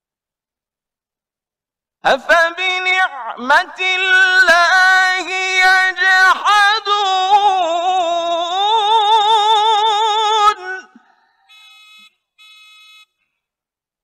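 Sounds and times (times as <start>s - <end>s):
man reciting in a long note: 2.0s - 11.0s.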